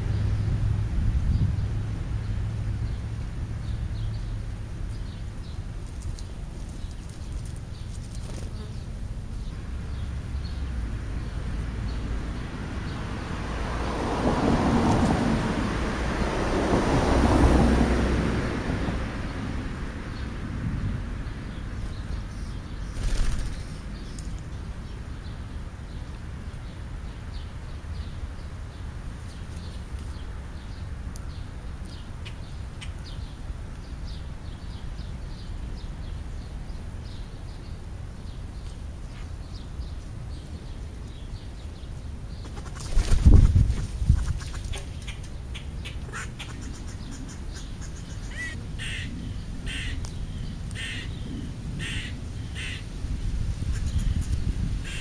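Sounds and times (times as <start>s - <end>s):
vehicle passing: 0.0s - 4.9s, 9.6s - 21.8s
outdoor background noise: 0.0s - 55.0s.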